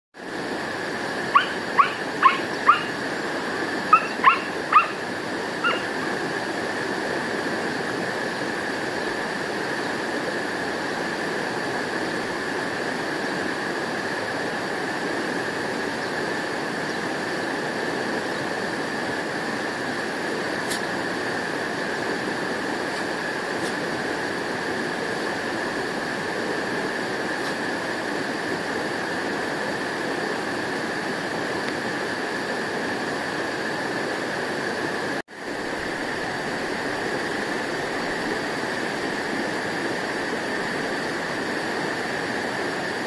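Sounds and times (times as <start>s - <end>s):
woodpecker calling: 1.3s - 5.0s, 5.6s - 6.1s.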